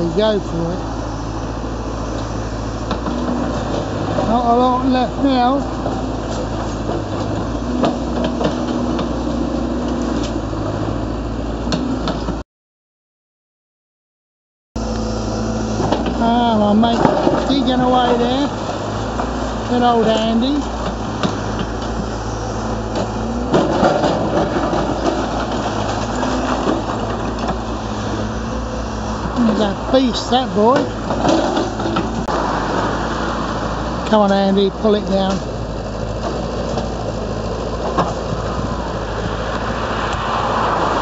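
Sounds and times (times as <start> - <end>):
excavator diesel engine running: 0.0 - 12.4, 14.8 - 41.0
rubble knocking and clattering: 23.0 - 27.7.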